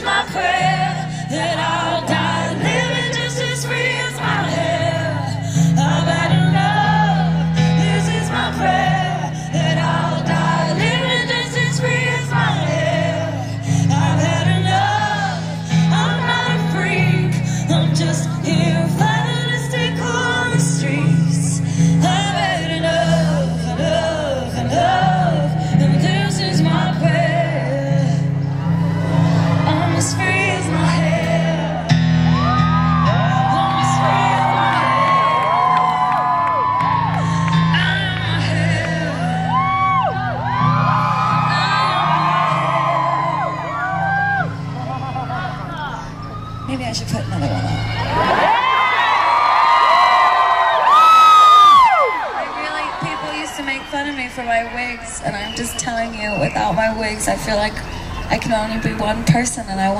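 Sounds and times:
woman singing: 0.0s - 28.5s, 29.4s - 36.4s, 37.3s - 40.3s, 52.6s - 59.9s
piano chords: 0.0s - 50.8s.

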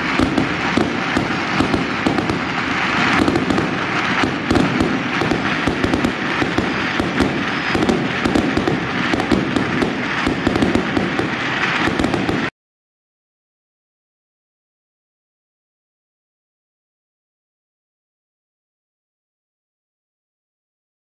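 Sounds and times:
fireworks bangs and crackling: 0.0s - 12.5s.

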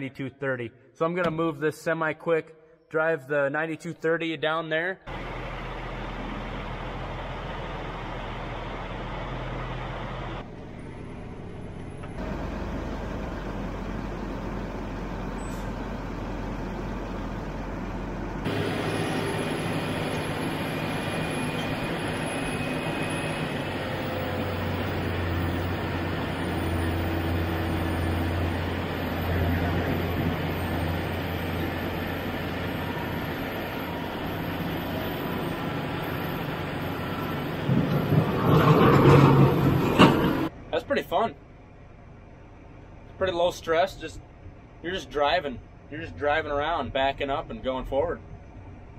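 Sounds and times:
vehicle engine running: 5.1s - 22.3s
tractor diesel engine: 5.1s - 48.9s.

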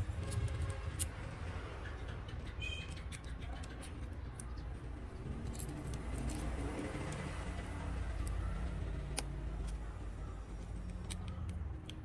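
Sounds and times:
fingers clicking parts into phone: 0.1s - 1.4s, 2.0s - 9.8s, 10.5s - 12.0s.

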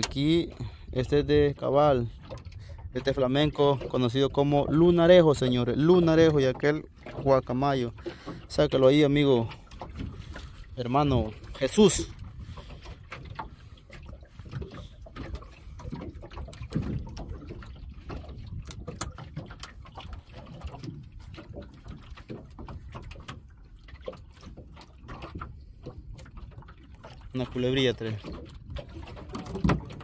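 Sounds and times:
clicks and knocks of fishing line: 0.0s - 0.7s, 9.5s - 30.0s
wind and water rumble: 0.0s - 30.0s.

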